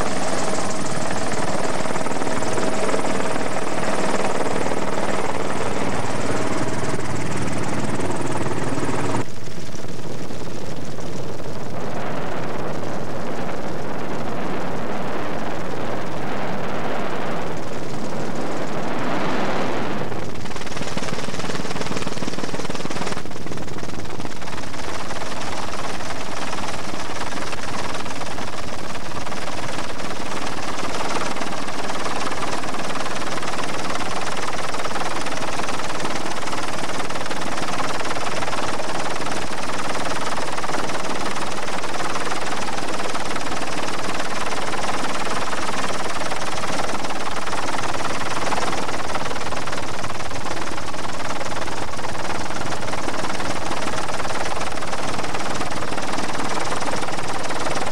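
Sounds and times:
helicopter drone: 0.0 - 57.9.

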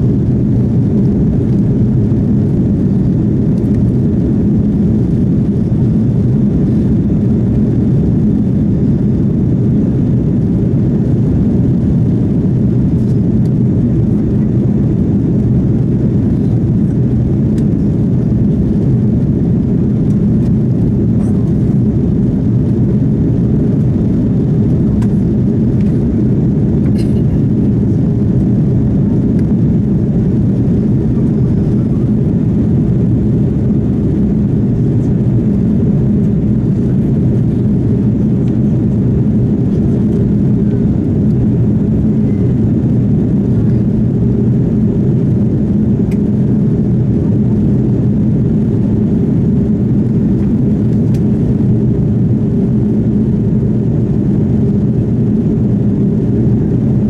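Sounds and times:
jet engines and airflow roar: 0.0 - 57.0.

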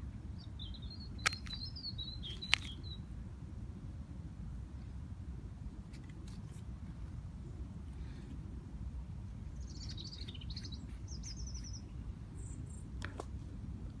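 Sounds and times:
low outdoor rumble: 0.0 - 14.0
bird chirps: 0.4 - 3.1, 9.6 - 12.9
songbird singing high notes: 0.4 - 3.1.

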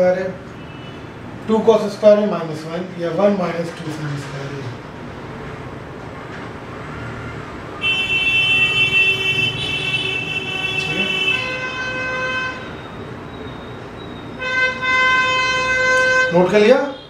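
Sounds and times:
vehicle horn honking: 0.6 - 1.2, 7.8 - 12.9, 14.3 - 17.0
lower-pitched horn: 7.8 - 12.7, 14.4 - 16.6.

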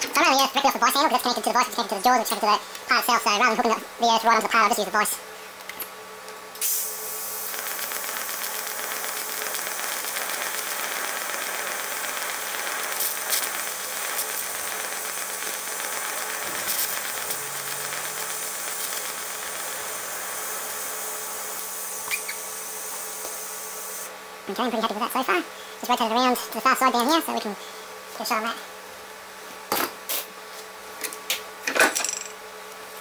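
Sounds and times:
welding arc hiss: 6.6 - 24.2, 30.0 - 30.3.

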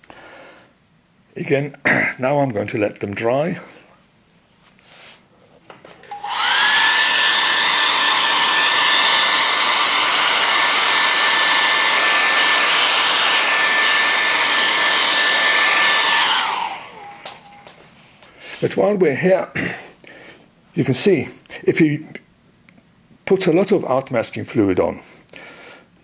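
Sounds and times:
hair dryer motor whine: 6.1 - 17.8.

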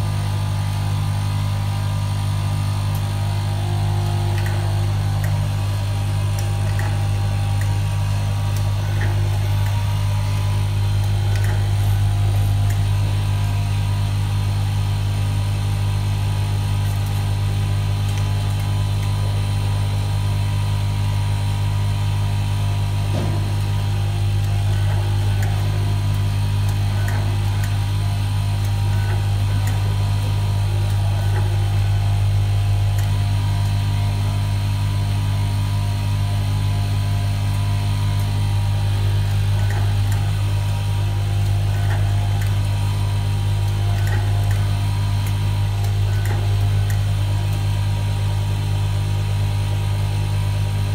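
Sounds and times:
machine electrical hum: 0.0 - 50.9
faint clicks of wires: 39.0 - 47.8.

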